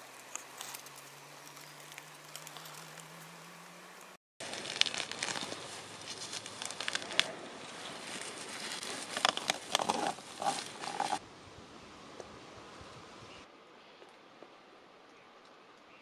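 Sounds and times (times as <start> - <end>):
moss tearing off branch: 0.0 - 3.4, 4.4 - 11.2.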